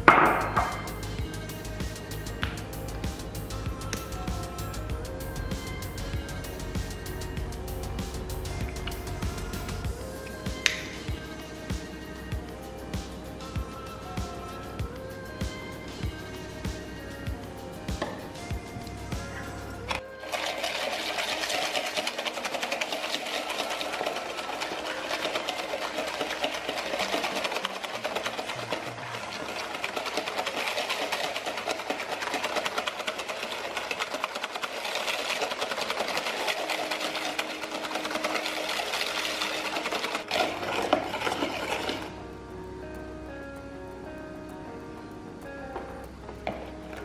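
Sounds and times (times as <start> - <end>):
whisking in a bowl: 0.0 - 42.2.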